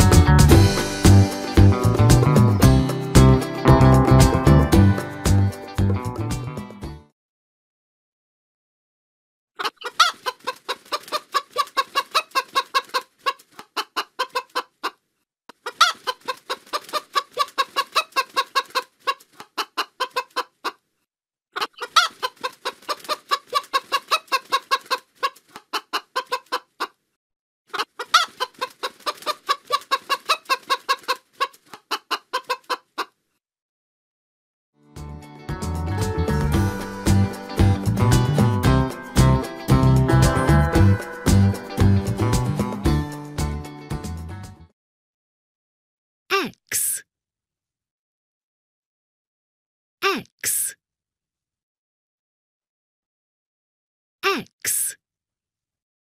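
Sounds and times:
hen clucking: 9.6s - 20.8s, 21.6s - 27.0s, 27.7s - 33.2s.

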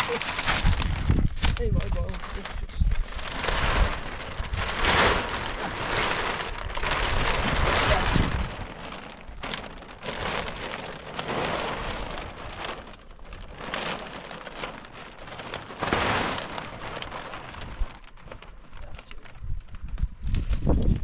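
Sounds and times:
plastic sheeting rustling: 0.0s - 21.0s.

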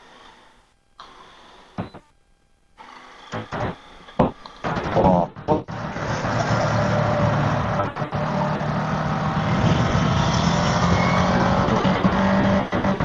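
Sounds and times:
motorcycle engine accelerating: 3.4s - 13.0s.

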